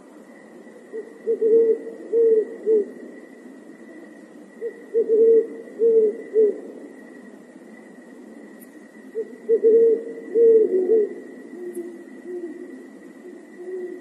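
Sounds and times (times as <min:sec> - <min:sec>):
owl hooting: 0:00.4 - 0:07.4, 0:08.1 - 0:14.0.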